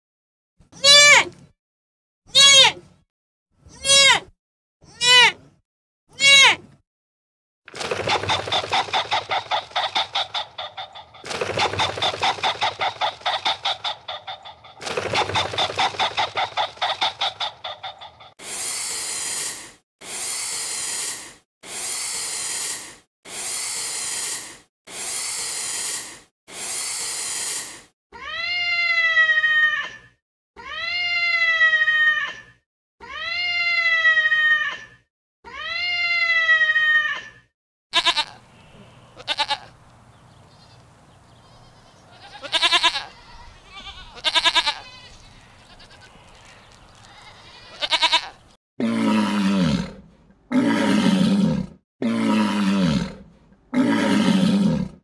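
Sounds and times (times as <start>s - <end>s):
iguana hissing: 17.4s - 27.9s
lion roaring: 48.8s - 55.0s.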